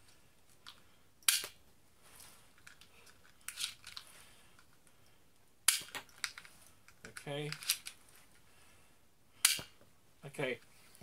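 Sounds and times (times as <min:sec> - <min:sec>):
toy gun spring snap: 0:01.3 - 0:01.5.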